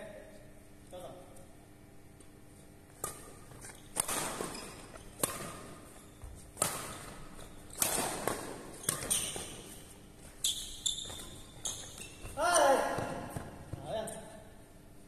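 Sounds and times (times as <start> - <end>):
badminton racket hitting shuttlecock: 2.9 - 10.0.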